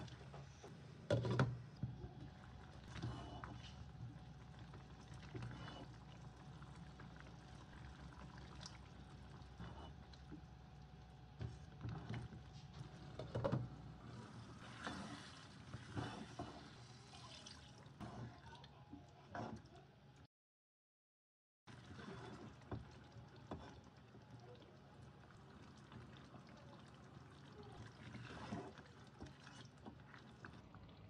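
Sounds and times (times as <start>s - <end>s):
spatula stirring thick gravy: 2.2s - 10.2s, 14.0s - 17.1s, 21.7s - 24.3s, 25.3s - 30.6s
spatula scraping a pan: 14.1s - 16.9s, 21.9s - 22.6s.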